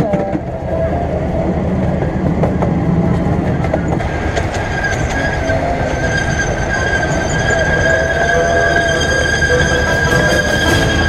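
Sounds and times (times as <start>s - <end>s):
train wheels clattering on rails: 0.0s - 0.7s, 1.5s - 11.0s
high-pitched wheel squeal: 3.8s - 11.0s.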